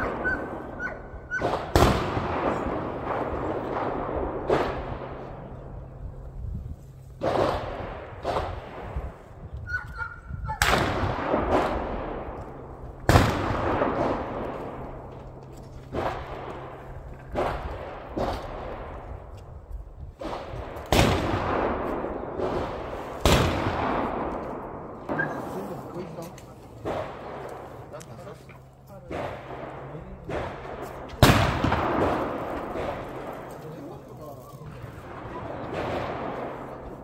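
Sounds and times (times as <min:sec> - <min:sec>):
gunshots with echo: 0:00.0 - 0:05.4, 0:07.2 - 0:09.2, 0:10.6 - 0:15.1, 0:29.0 - 0:34.0, 0:34.9 - 0:37.0.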